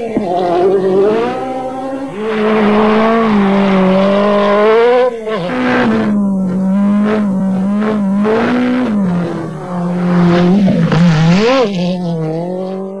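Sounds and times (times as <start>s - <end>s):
rally car engine revving: 0.0s - 13.0s.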